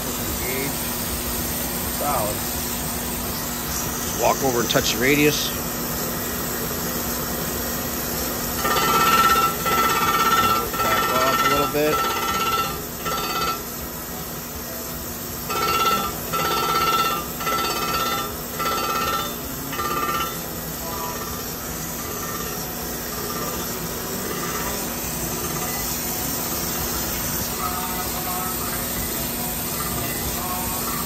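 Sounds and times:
machine running: 0.0 - 31.0
grinder wheel grinding metal: 8.5 - 13.8, 15.4 - 27.6.

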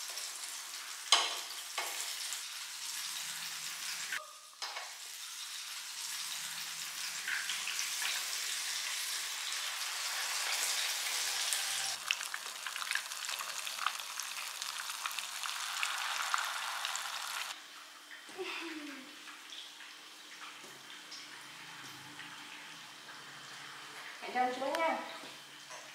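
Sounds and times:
batter sizzling in a pan: 0.0 - 17.6.

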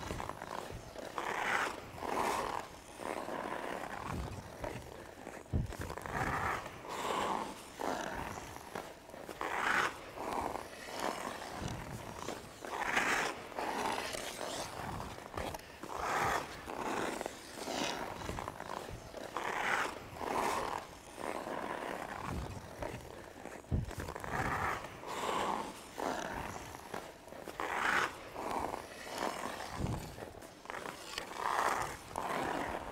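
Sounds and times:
skate blades scraping ice: 0.0 - 32.9.

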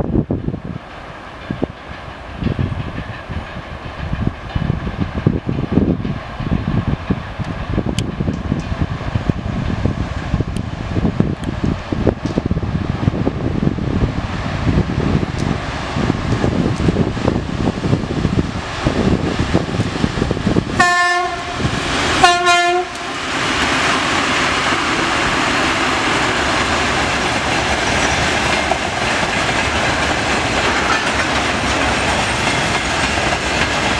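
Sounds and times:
diesel locomotive engines running: 0.0 - 33.9
train wagons rolling on rails: 0.0 - 33.9
locomotive horn blasts: 20.8 - 23.1.

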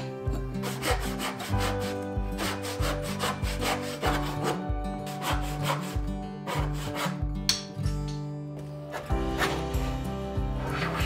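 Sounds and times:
soft background music: 0.0 - 11.0
hand saw cutting wood: 0.3 - 7.2, 8.9 - 9.9, 10.6 - 11.0.

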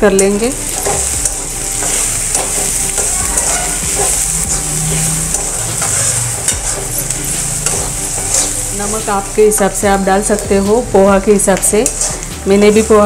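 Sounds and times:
oil sizzling: 0.0 - 13.0
metal spatula scraping a pan: 0.7 - 9.6.

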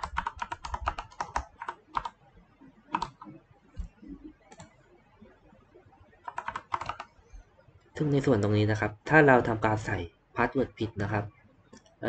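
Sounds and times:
typing on computer keyboard: 0.0 - 2.2, 2.9 - 4.8, 6.2 - 7.2.

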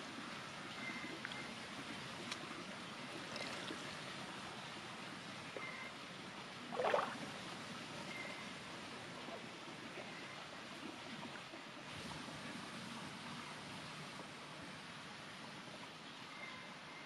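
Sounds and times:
water swish: 0.0 - 15.9
steady low hiss: 0.0 - 17.0
hands rinsing in water: 6.8 - 7.2.

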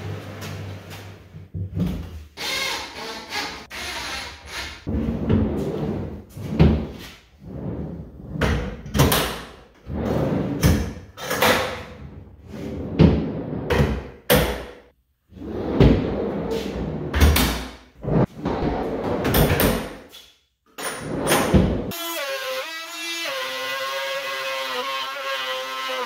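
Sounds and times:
drawers rolling on roller tracks: 4.9 - 14.0, 15.4 - 20.0, 20.8 - 21.9.

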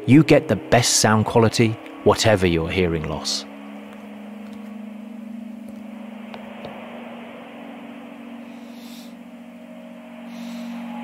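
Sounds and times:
low drone: 0.0 - 11.0
even hiss: 6.4 - 11.0.

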